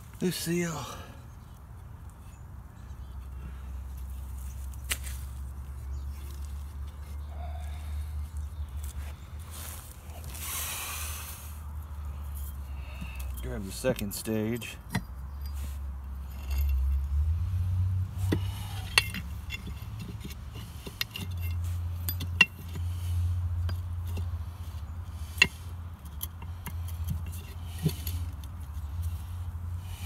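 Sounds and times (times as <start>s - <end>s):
metal clinks and taps: 18.3s - 22.8s.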